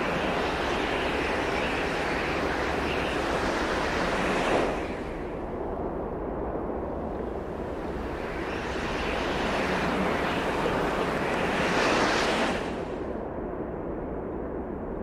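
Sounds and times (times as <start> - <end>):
rushing noise: 7.4 - 13.0.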